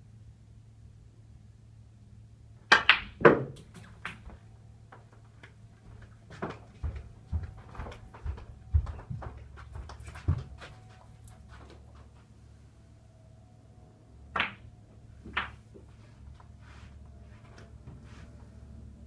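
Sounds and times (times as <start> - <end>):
footsteps: 3.7 - 12.4
snooker balls clacking: 14.3 - 14.6, 15.3 - 15.6.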